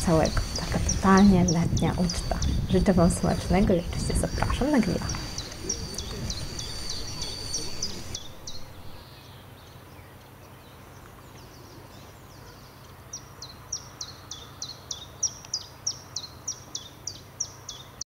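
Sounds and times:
steady hiss: 0.0 - 9.1
bird calling with descending notes: 0.0 - 9.3.

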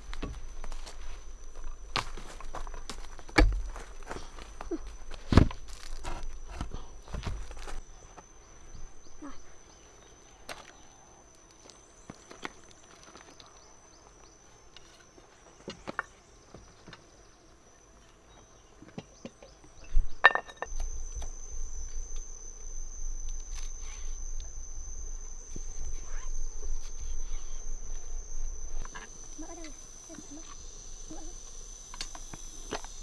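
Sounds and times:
insects shrilling: 0.0 - 16.3, 20.7 - 33.0.

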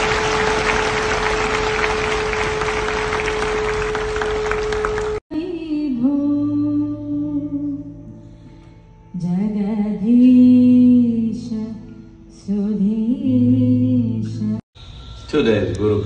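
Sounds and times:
crowd applauding: 0.0 - 5.2.

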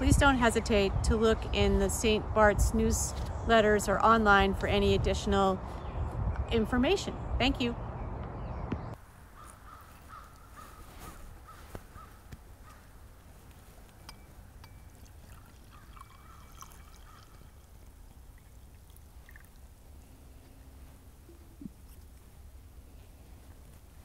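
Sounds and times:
bird calling: 8.4 - 13.0, 15.6 - 17.6.

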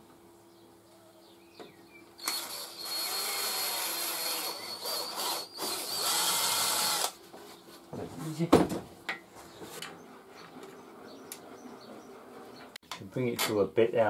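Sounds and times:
cordless drill running: 2.2 - 7.2.

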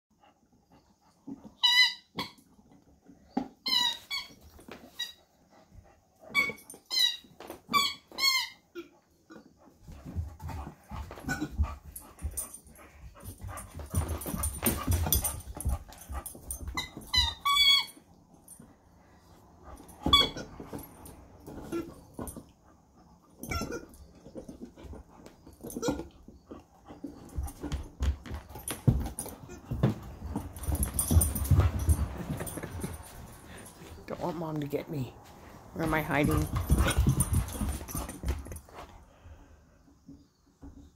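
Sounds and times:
squeaky toy squeaks: 1.6 - 2.4, 3.6 - 5.2, 6.3 - 8.9, 16.8 - 18.0, 20.0 - 20.5, 23.4 - 24.0
soft knocks and scuffs: 24.4 - 39.0.

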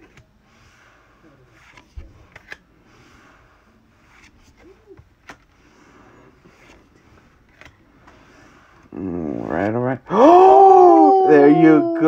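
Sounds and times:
cards rustling: 1.5 - 3.3, 3.9 - 8.9.

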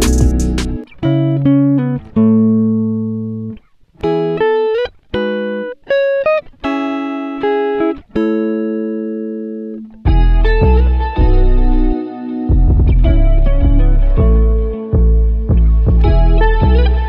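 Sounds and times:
slow plucked melody: 0.0 - 4.5, 6.6 - 17.0.

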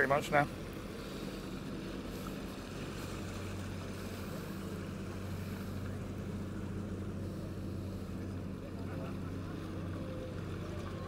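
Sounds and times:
motor boat engine humming: 0.0 - 11.0.

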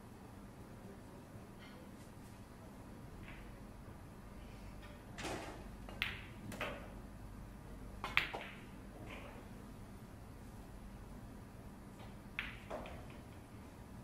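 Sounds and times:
pool balls clicking: 5.2 - 6.9, 8.0 - 9.5, 11.9 - 13.5.

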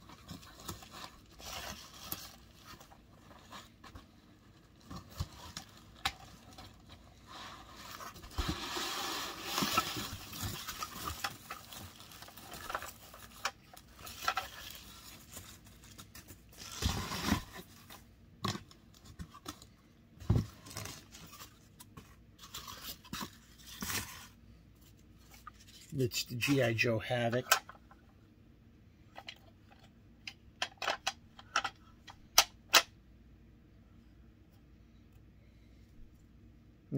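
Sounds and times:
packing material rustling: 0.0 - 18.0.

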